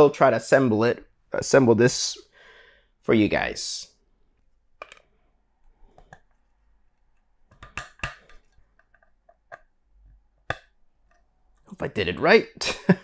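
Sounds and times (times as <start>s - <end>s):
plastic parts clicking together: 4.8s - 5.1s.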